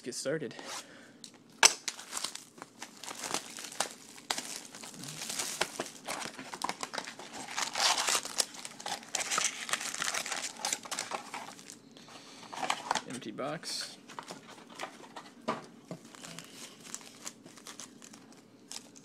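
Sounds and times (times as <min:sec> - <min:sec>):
shrink wrap crinkling and tearing: 0:01.6 - 0:11.8, 0:16.0 - 0:19.0
wrapped packs crinkling: 0:01.6 - 0:11.8, 0:16.0 - 0:19.0.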